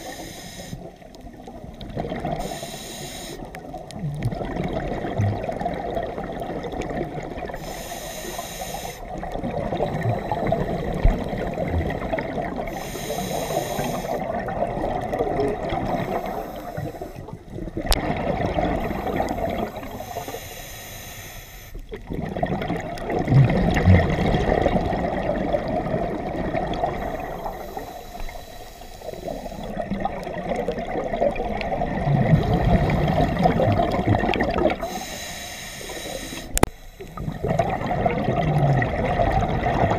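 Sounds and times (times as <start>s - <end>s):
hissing regulator inhalations: 0.0s - 1.0s, 2.4s - 3.6s, 7.5s - 9.2s, 12.7s - 14.3s, 15.9s - 17.3s, 18.8s - 21.9s, 26.9s - 29.9s, 34.8s - 37.6s
bubbling exhalation: 4.0s - 7.6s, 21.9s - 27.4s, 29.6s - 35.0s, 37.2s - 39.9s.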